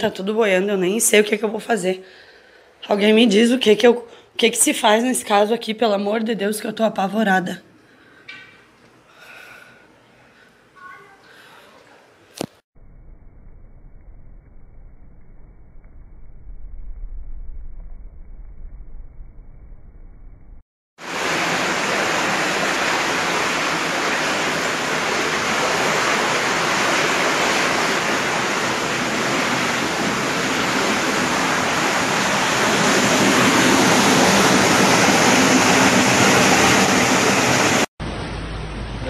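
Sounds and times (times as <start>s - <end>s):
floodwater rushing: 21.0s - 37.9s.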